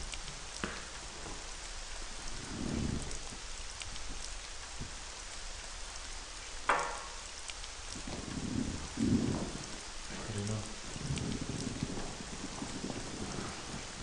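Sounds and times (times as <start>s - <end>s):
rain pattering: 0.0s - 14.0s
low rumbles: 7.9s - 14.0s.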